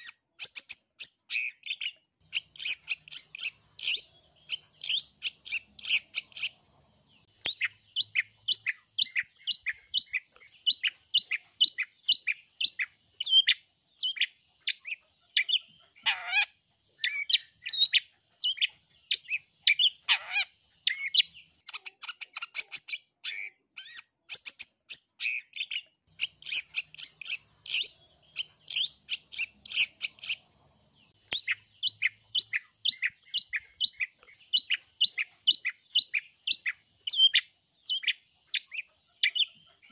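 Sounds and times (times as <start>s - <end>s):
shrike chattering calls: 14.8s - 16.5s, 19.2s - 21.2s, 26.1s - 30.5s.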